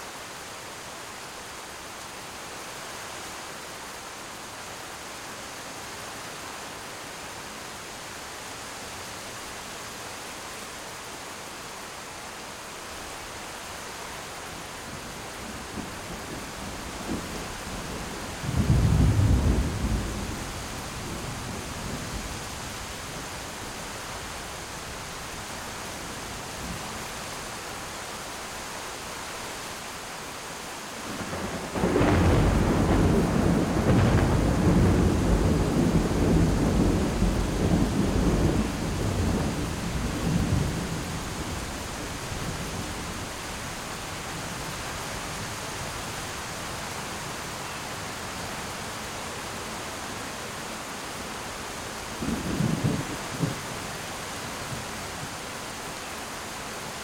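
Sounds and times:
rain falling: 0:00.0 - 0:57.0
rolling thunder: 0:15.8 - 0:22.0, 0:31.2 - 0:41.6
thunderclap: 0:31.7 - 0:39.6.

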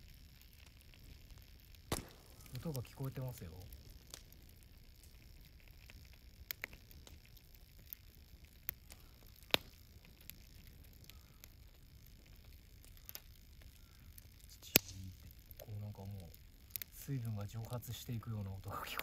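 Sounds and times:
campfire crackling and popping: 0:00.0 - 0:19.0
faint steaming hiss: 0:01.0 - 0:05.8, 0:08.6 - 0:19.0.

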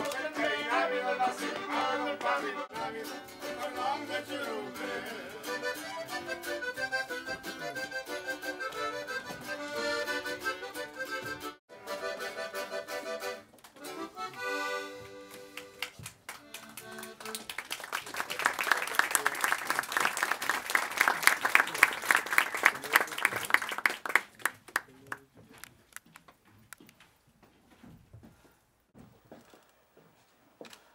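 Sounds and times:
musical tune: 0:00.0 - 0:15.8
audience applauding: 0:15.3 - 0:25.3.

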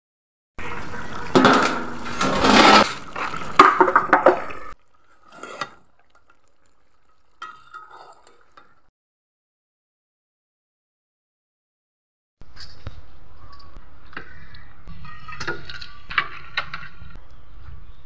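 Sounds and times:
metal ladle scraping a pot: 0:00.6 - 0:08.9.

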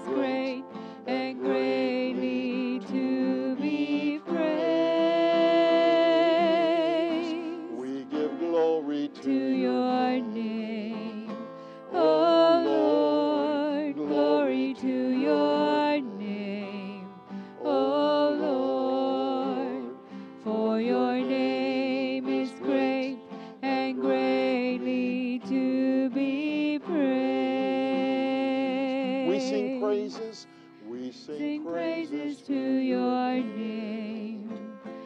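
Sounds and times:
man singing: 0:00.0 - 0:05.5, 0:07.1 - 0:10.4, 0:11.9 - 0:16.1, 0:29.0 - 0:33.7
acoustic guitar: 0:00.0 - 0:35.0.

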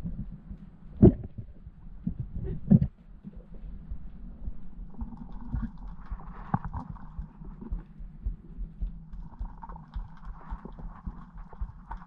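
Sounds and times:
low hum: 0:00.0 - 0:12.0
dull underwater thumps: 0:01.0 - 0:02.9.

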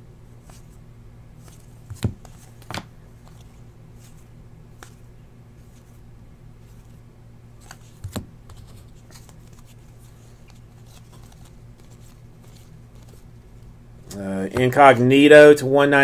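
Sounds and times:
faint low hum: 0:00.0 - 0:16.0
cards being flipped by hand: 0:00.4 - 0:00.8, 0:01.4 - 0:06.0, 0:07.6 - 0:15.0.

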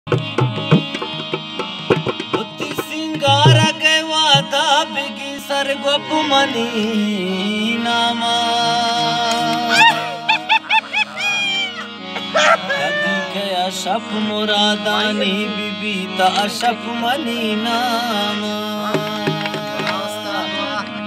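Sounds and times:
hand-drum strokes: 0:00.1 - 0:03.7
man singing into a microphone: 0:02.2 - 0:21.0
instrumental drone: 0:03.2 - 0:03.7, 0:08.8 - 0:13.7.

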